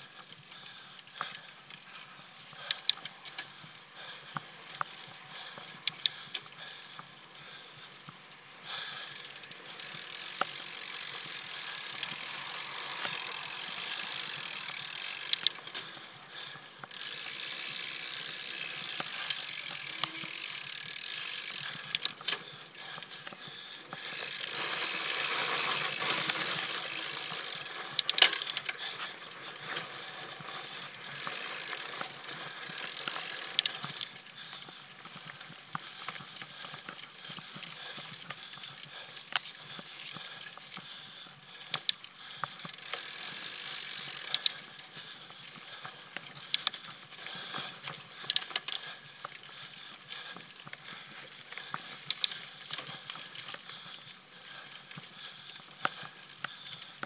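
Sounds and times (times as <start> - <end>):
bicycle freewheel ticking: 0.0 - 57.0
bike clicks and rattles: 0.0 - 57.0
tyres rolling over dirt: 23.9 - 34.0.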